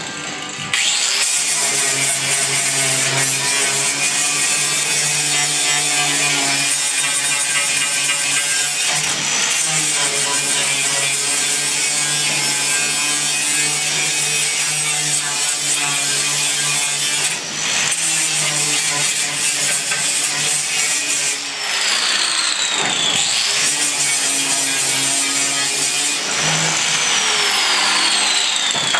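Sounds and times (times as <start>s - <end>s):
angle grinder grinding steel: 0.0s - 28.9s.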